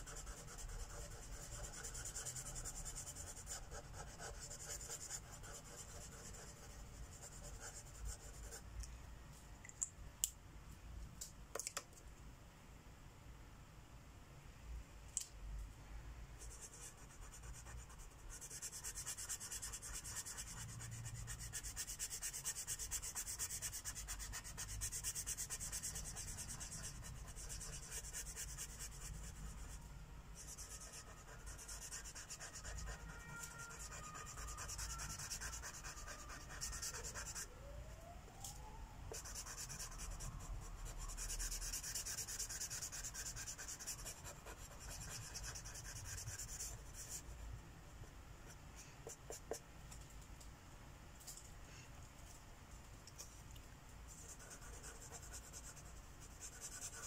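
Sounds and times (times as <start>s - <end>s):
marker tip scratching on paper: 18.3s - 29.2s, 30.4s - 37.5s.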